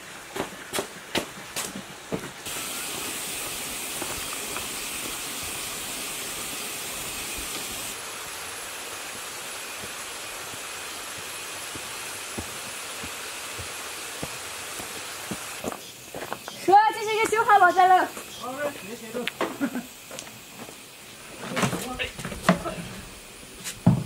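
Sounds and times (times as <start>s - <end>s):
footsteps on a stony path: 0.0s - 2.5s, 3.4s - 5.2s, 9.8s - 19.4s
high-pitched outdoor hiss: 0.0s - 24.0s.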